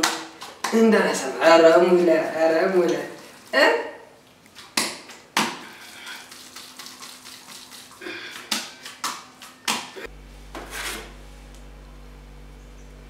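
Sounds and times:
steady low hum: 0:09.9 - 0:13.0.

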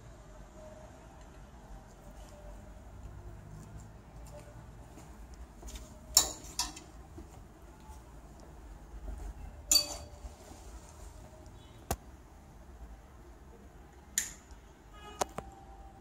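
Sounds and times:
clothes hangers clinking on metal rail: 0:06.1 - 0:06.9, 0:09.7 - 0:10.2.

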